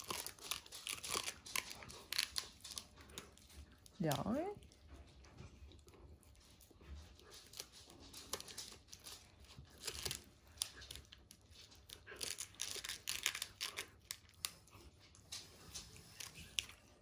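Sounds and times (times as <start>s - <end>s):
dog gnawing a chew bone: 0.0s - 17.0s.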